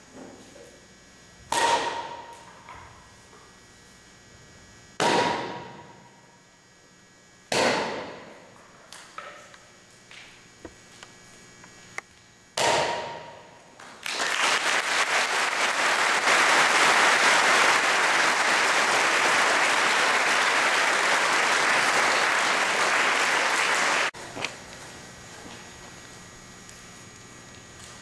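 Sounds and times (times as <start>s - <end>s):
crowd applauding: 13.9s - 24.2s.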